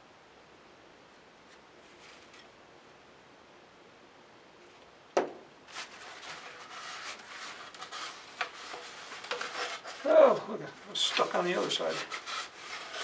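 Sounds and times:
paper towel rubbing on tube: 5.7s - 13.0s.

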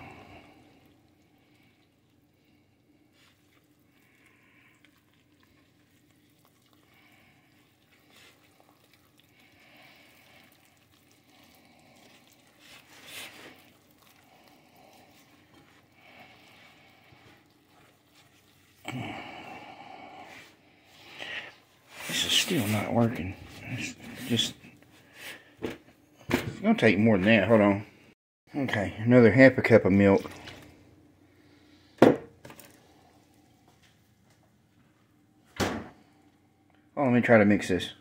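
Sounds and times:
spatula stirring batter in a bowl: 0.0s - 18.9s.

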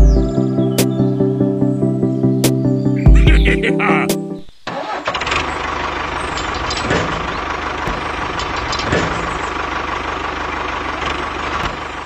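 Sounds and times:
tractor engine chugging: 4.7s - 12.0s.

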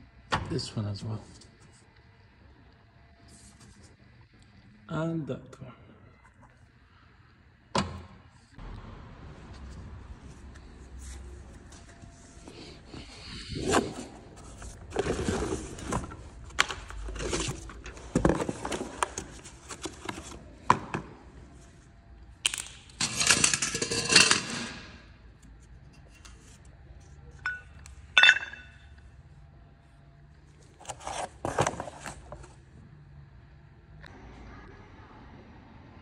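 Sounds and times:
scraping and rustling of box: 11.0s - 20.5s, 30.8s - 32.6s.

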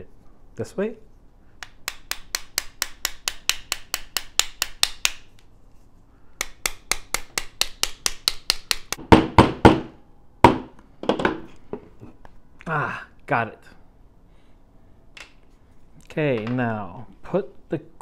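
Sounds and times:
hammer tapping pin punch: 1.6s - 5.2s, 6.4s - 9.6s.

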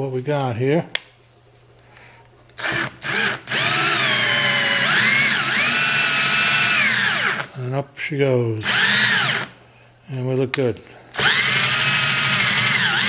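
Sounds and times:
cordless drill whining: 2.6s - 7.5s, 8.6s - 9.6s, 11.1s - 13.0s
drill trigger blips: 2.6s - 7.5s, 8.6s - 9.5s, 11.1s - 13.0s.

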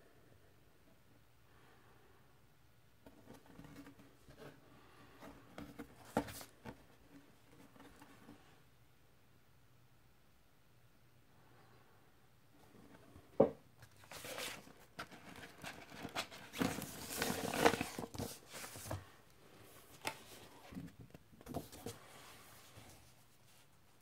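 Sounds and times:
record sleeve rustling: 5.5s - 8.4s, 13.8s - 24.0s.

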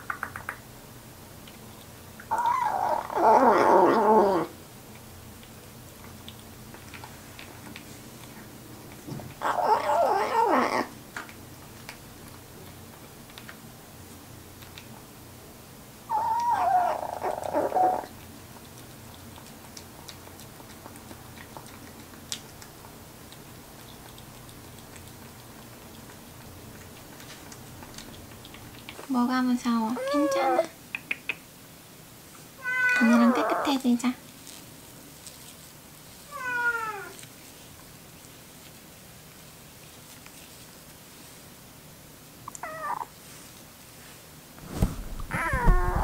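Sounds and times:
faint eating clicks: 0.0s - 0.7s, 1.3s - 3.6s, 4.8s - 10.3s, 10.9s - 15.3s, 16.1s - 31.6s
kitten growling: 2.3s - 4.6s, 9.4s - 11.0s, 16.1s - 18.1s, 45.1s - 46.0s.

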